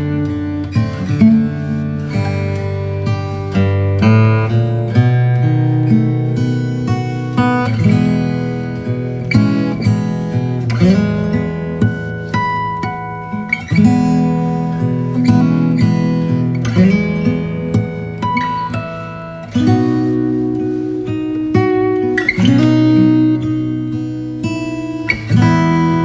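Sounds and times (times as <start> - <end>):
acoustic guitar picking notes: 0.0 - 26.0
guitar chords strummed: 0.0 - 26.0.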